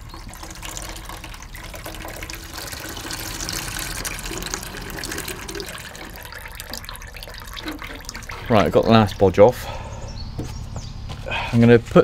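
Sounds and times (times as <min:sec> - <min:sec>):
liquid pouring into plastic bucket: 0:00.0 - 0:09.3.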